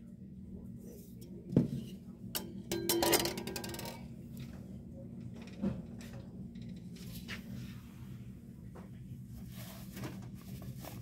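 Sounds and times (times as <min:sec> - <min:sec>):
steady low hum: 0:00.0 - 0:11.0
metal ringing: 0:02.4 - 0:04.0.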